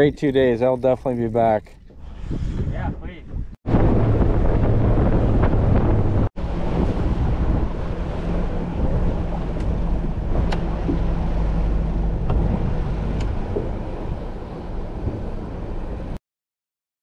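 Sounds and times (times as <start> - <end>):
motorboat engine hum: 0.0 - 2.7, 3.3 - 16.2
wind buffeting microphone: 0.0 - 16.2
water rushing along hull: 3.7 - 16.2.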